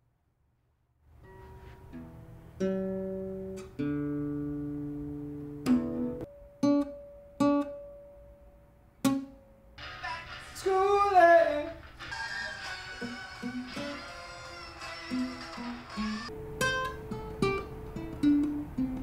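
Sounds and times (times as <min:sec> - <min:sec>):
classical guitar plucked chords: 0:01.2 - 0:09.7, 0:15.1 - 0:19.0
music with bending melody: 0:09.1 - 0:19.0.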